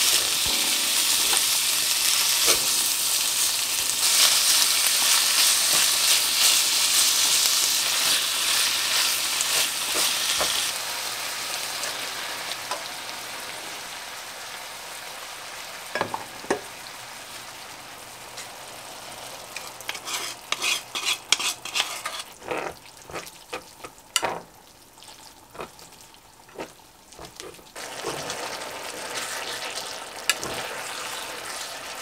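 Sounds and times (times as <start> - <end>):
food sizzling in a frying pan: 0.0 - 32.0
chopsticks stirring noodles in pan: 19.6 - 23.6.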